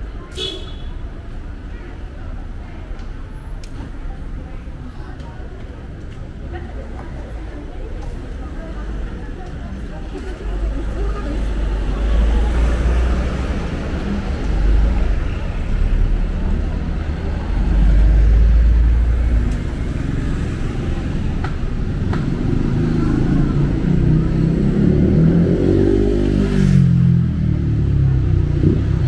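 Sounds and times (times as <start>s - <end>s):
passing cars rumbling: 3.2s - 29.0s
vehicle engine approaching: 8.1s - 29.0s.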